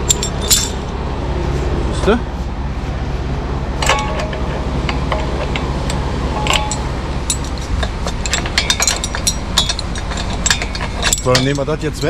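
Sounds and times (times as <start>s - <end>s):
metal rack and chains clinking: 0.0s - 1.0s, 3.8s - 12.0s
truck engine drone: 0.0s - 12.0s.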